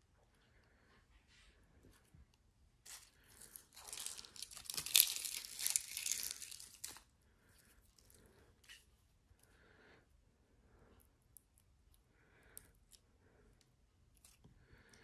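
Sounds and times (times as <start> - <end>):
plastic film crinkling: 2.9 - 7.0.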